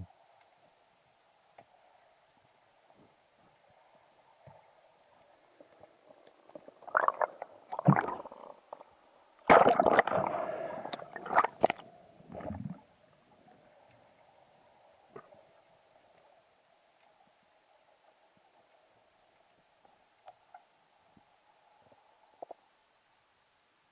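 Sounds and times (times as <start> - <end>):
faint steady hum: 0.0 - 23.9
underwater knocks and scrapes: 9.6 - 12.8.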